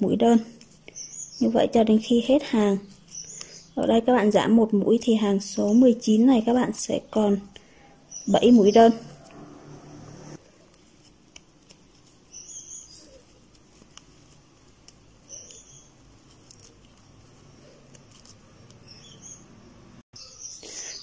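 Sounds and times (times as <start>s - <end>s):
crochet hook rustling yarn: 8.4s - 19.3s.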